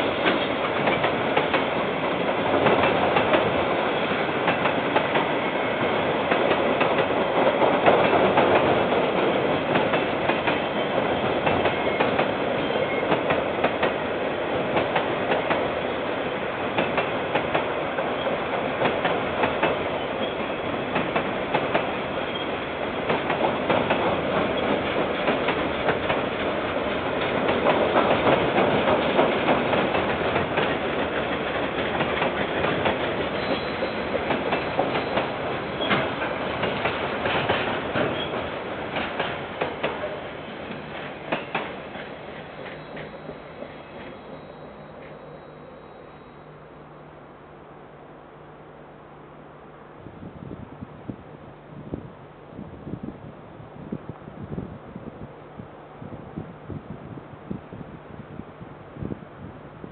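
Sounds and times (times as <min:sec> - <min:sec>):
train wheels clicking over rail joints: 0:00.0 - 0:15.8, 0:16.6 - 0:45.3.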